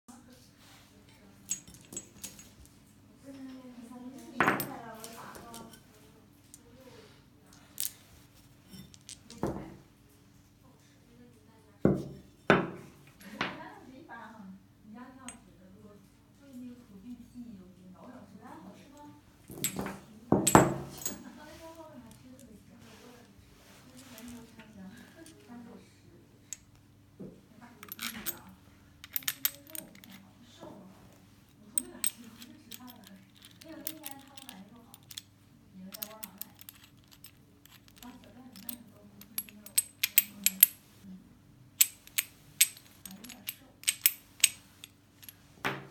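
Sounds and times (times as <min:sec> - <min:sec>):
metal bolts clinking: 0:01.5 - 0:02.5, 0:19.6 - 0:21.3, 0:27.8 - 0:30.2, 0:35.9 - 0:40.8, 0:41.8 - 0:45.4.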